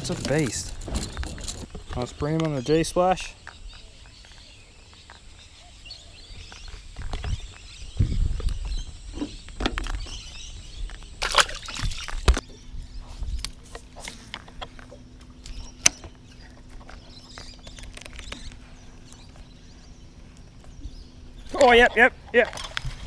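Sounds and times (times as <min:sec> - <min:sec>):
faint steady hum: 0:00.0 - 0:23.0
fish splashing into water: 0:11.2 - 0:12.4.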